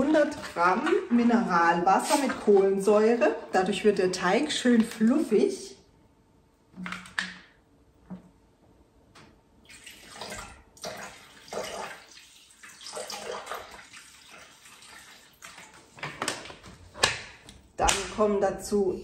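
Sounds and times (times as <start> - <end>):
water pouring and splashing: 0.0 - 3.8, 9.6 - 16.3.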